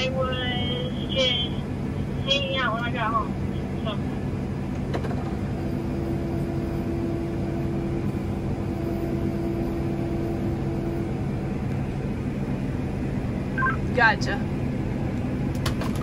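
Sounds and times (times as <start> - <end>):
combine machine hum: 0.0 - 16.0
higher steady tone: 13.6 - 14.3.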